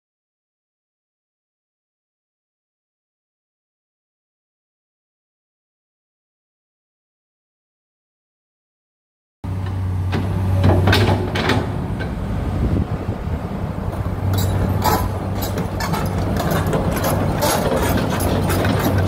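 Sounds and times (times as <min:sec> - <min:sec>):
diesel engine droning: 0:09.4 - 0:19.0
short clanks and knocks: 0:09.6 - 0:12.2, 0:13.9 - 0:19.0.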